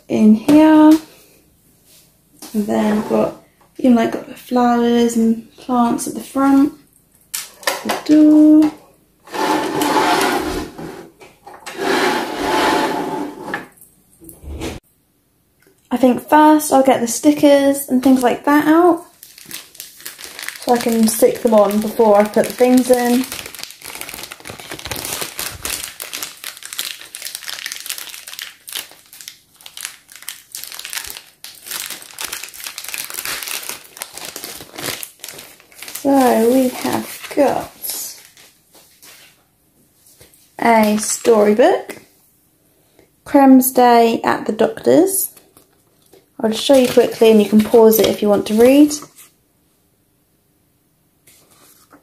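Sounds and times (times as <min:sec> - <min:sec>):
plastic toy scraping on wood: 0:09.3 - 0:11.1, 0:11.7 - 0:13.7
plastic packaging crinkling: 0:17.9 - 0:39.3, 0:45.4 - 0:49.2.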